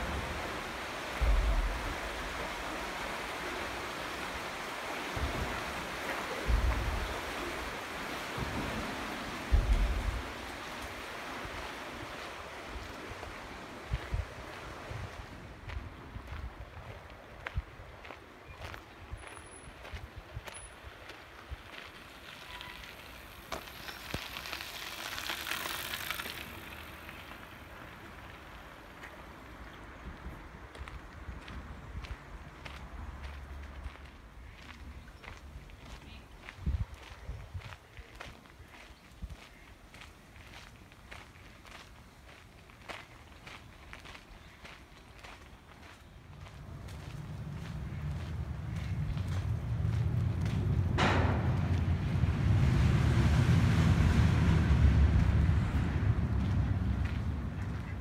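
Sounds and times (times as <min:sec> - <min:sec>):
steady rushing outdoor noise: 0:00.0 - 0:58.0
wind buffeting microphone: 0:04.6 - 0:21.8, 0:34.6 - 0:39.5, 0:45.8 - 0:58.0
vehicle passing with ticking hiss: 0:19.2 - 0:30.6, 0:43.4 - 0:58.0.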